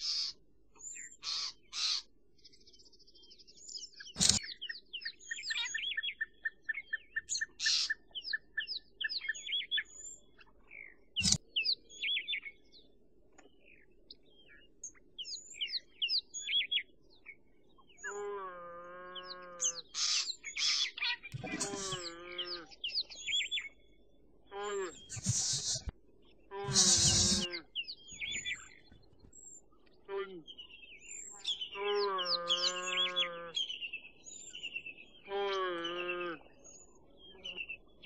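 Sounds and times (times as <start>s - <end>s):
small birds chirping: 0.0s - 18.3s, 19.1s - 38.0s
sharp click: 4.2s - 4.4s
gazelle fawn bleating: 21.4s - 22.7s, 24.5s - 25.9s, 26.5s - 27.7s, 31.8s - 33.6s.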